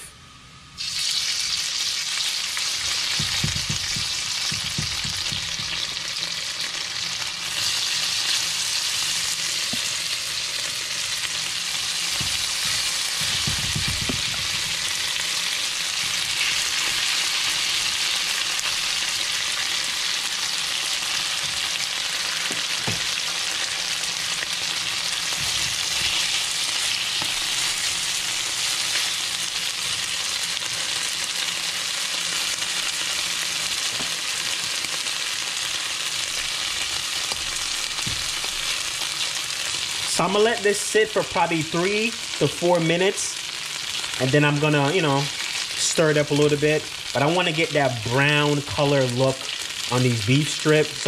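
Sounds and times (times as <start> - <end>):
meat sizzling in hot oil: 0.8 - 51.0
spatula knocking against wok: 3.1 - 5.9, 12.2 - 14.6.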